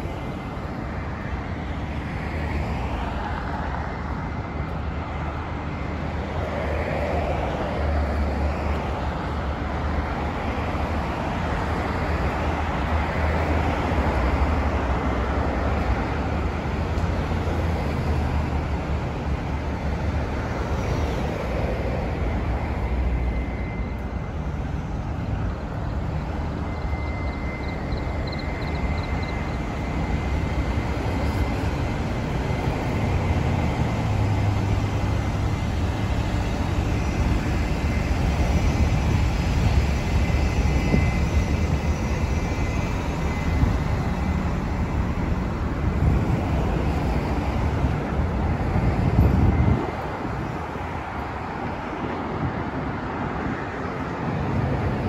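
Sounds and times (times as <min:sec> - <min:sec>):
city road traffic rumble: 0:00.0 - 0:55.0.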